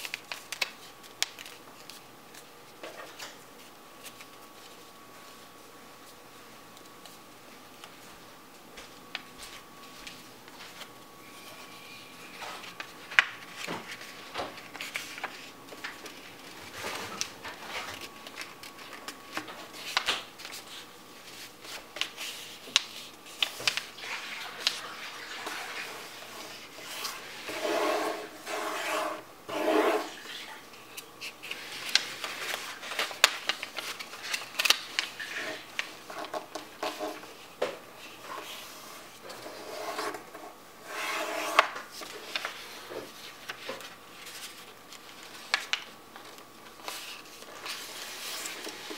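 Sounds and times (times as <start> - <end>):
paper rustling and sliding: 9.1 - 48.9
paper rubbing: 19.8 - 30.6, 38.0 - 48.9.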